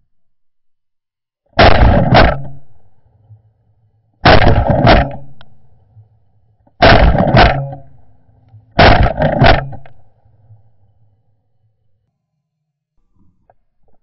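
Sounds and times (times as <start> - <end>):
shotgun blasts: 1.6 - 2.8, 4.2 - 5.4, 6.8 - 8.0, 8.8 - 9.8.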